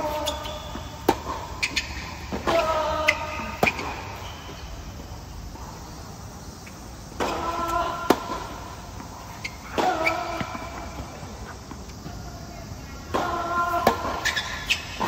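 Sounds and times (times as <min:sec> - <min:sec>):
tennis shoes squealing on court: 0:00.0 - 0:04.9, 0:06.5 - 0:15.0
racket striking tennis ball: 0:00.1 - 0:04.0, 0:07.1 - 0:12.0.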